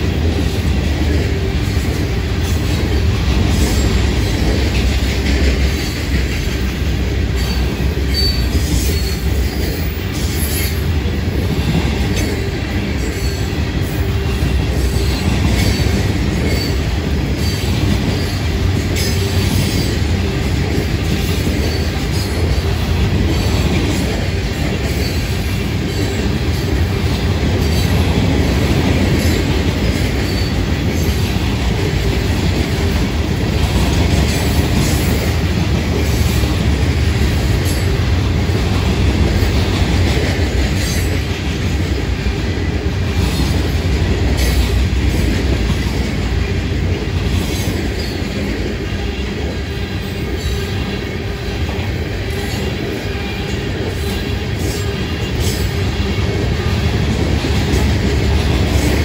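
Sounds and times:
train wheels rumbling on rail: 0.0 - 59.0.

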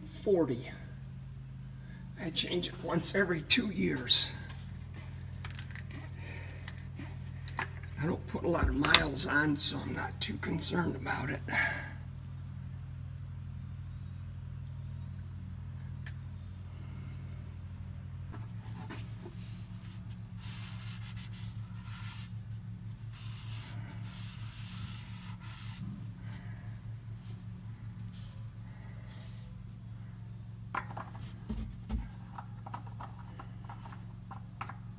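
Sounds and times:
low hum: 11.6 - 34.9.

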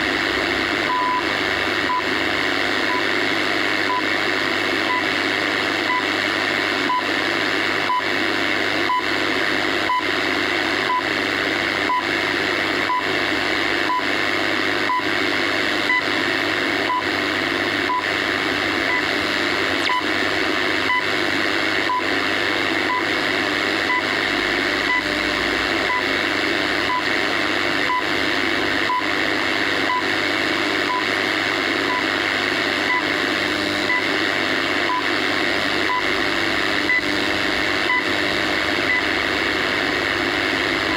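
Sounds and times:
radio static hiss: 0.0 - 40.9
radio time signal ticks: 2.8 - 3.1, 5.8 - 6.1, 18.8 - 19.1, 19.8 - 20.1, 24.8 - 25.2, 26.8 - 27.2, 34.8 - 35.2, 36.8 - 37.1, 37.8 - 38.2.

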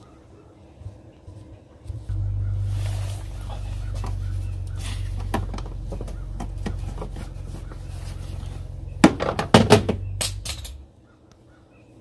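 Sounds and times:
low rumble: 1.9 - 10.8.

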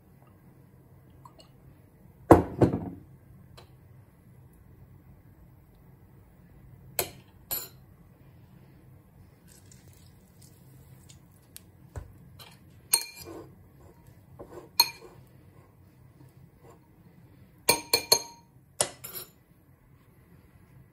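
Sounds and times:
metal spoon clinking ceramic bowl: 12.4 - 13.3, 14.8 - 15.2, 17.7 - 19.4.

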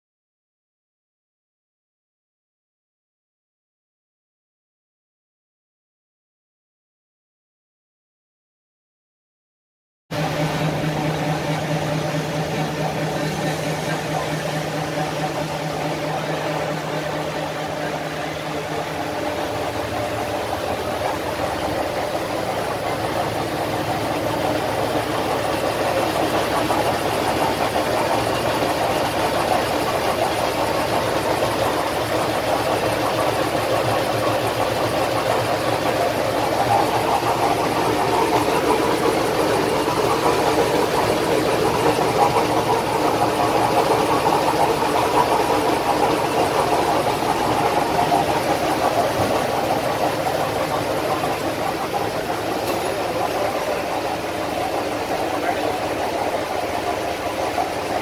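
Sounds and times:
machine mechanical drone: 10.1 - 58.0.

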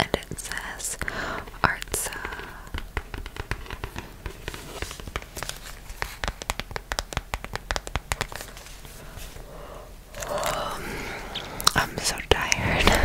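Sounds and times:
fingernails tapping on leather: 1.8 - 8.4.

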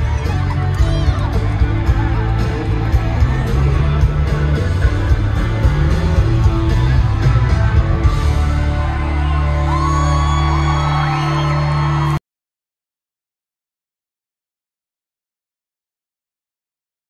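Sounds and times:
electric guitar: 0.0 - 12.2
live country rock band: 0.0 - 12.2.

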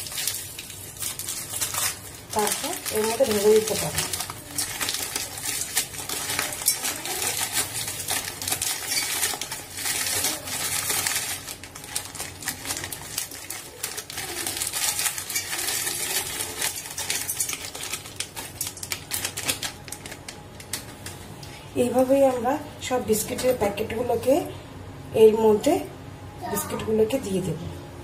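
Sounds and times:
plastic packets crinkling: 0.0 - 21.3.

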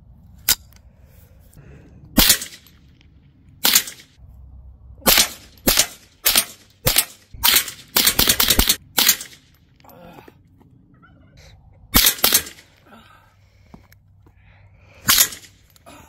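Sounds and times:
rifle shots: 2.2 - 2.7, 3.6 - 4.2, 5.0 - 9.5, 12.0 - 12.7.

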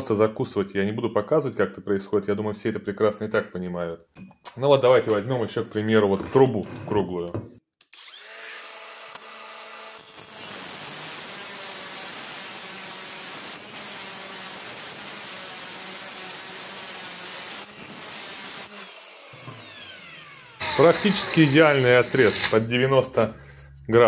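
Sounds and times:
angle grinder cutting metal pipe: 7.9 - 22.7.

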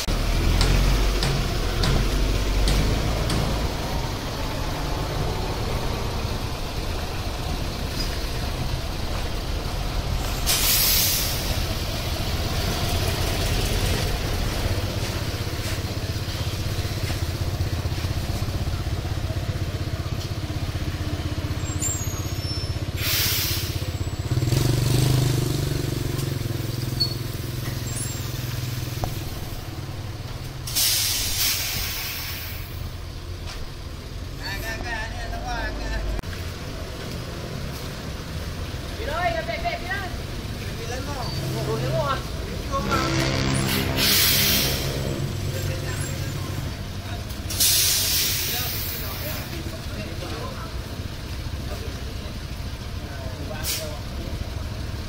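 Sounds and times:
truck diesel engine running: 0.0 - 34.4, 35.0 - 55.0
air brake hiss: 10.2 - 11.7, 22.9 - 24.1, 30.7 - 33.0, 43.9 - 45.1, 47.4 - 49.5, 53.6 - 54.0.

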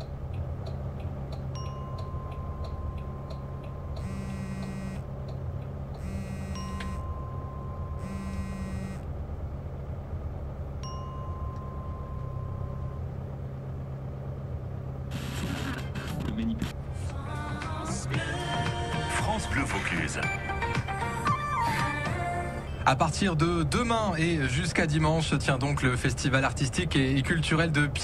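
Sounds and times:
car driving from inside cabin: 0.0 - 28.0
long beeps: 1.6 - 5.2, 6.0 - 9.1
electronic chimes: 6.0 - 9.0
voice: 15.2 - 20.7, 22.8 - 28.0
music: 17.0 - 22.8.

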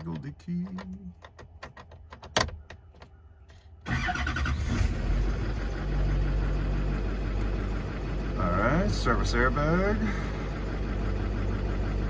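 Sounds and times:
ignition key clicks: 0.0 - 3.1
diesel engine starting and idling: 3.8 - 12.0.

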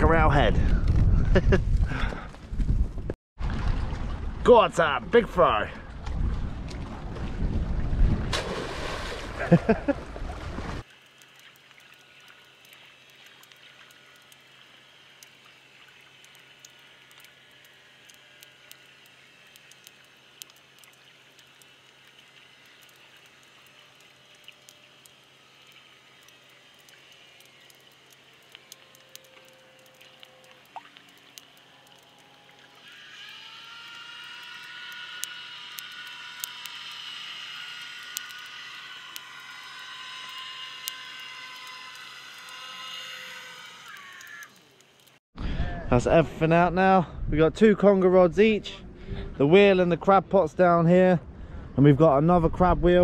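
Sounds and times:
whine of steady tones: 12.4 - 46.8
scattered light clicks: 15.1 - 45.2.

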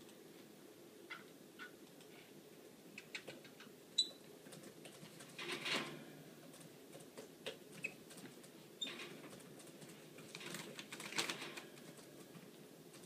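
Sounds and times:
bird clicking and scratching in cage: 4.5 - 12.3.

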